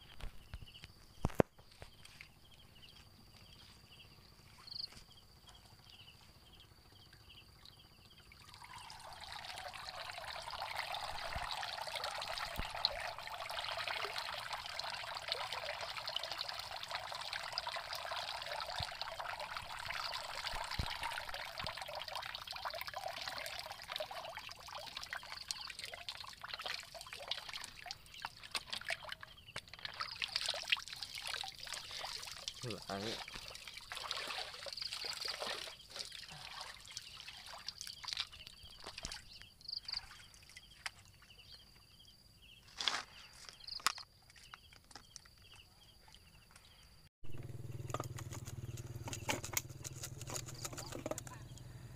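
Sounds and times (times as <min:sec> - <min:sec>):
water pouring and trickling: 0:07.1 - 0:41.4, 0:47.3 - 0:51.6.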